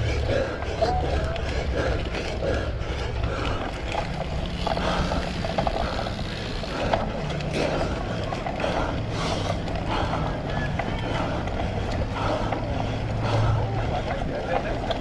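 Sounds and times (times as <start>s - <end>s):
bike tyres on ground: 0.0s - 15.0s.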